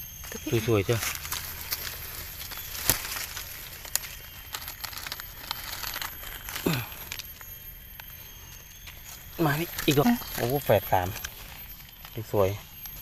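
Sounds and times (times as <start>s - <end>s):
dry leaves crinkling: 0.0s - 13.0s.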